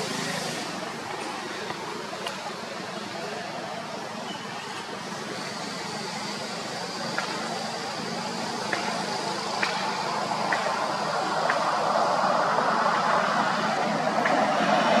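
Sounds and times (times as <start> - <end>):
passing vehicle rumble: 4.9 - 15.0.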